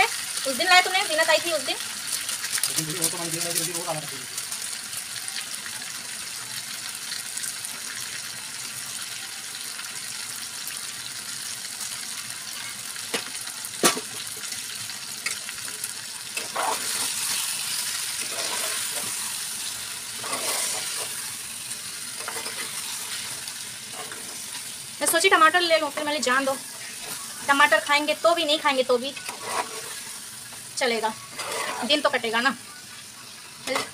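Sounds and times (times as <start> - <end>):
food sizzling in pan: 0.0 - 33.9
spatula scraping pan: 16.2 - 25.2, 28.8 - 32.3, 33.6 - 33.9.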